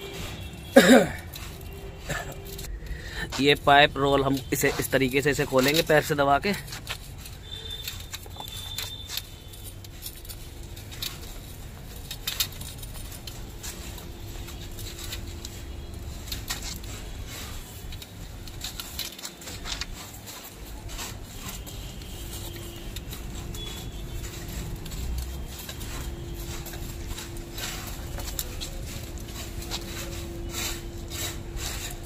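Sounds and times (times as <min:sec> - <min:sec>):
copper pipe scraping on concrete: 0:13.2 - 0:32.0.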